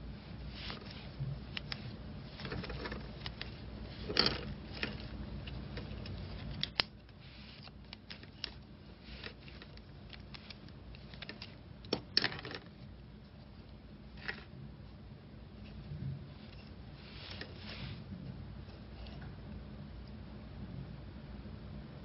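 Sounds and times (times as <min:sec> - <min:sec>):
thread rustling: 0:00.0 - 0:14.5, 0:15.5 - 0:18.1.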